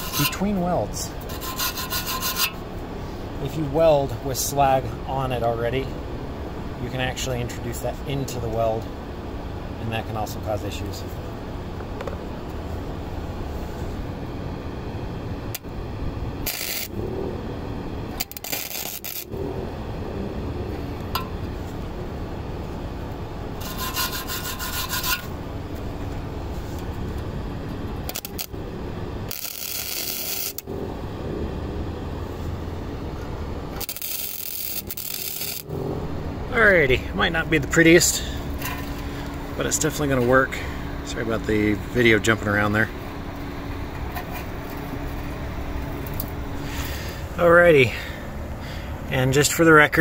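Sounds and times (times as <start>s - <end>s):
welder arc crackling: 15.4s - 17.0s, 18.0s - 19.4s, 23.6s - 25.4s, 26.0s - 30.7s, 32.2s - 35.7s
welding hiss: 16.4s - 17.0s, 18.2s - 19.3s, 28.1s - 28.5s, 29.3s - 30.6s, 33.8s - 35.7s.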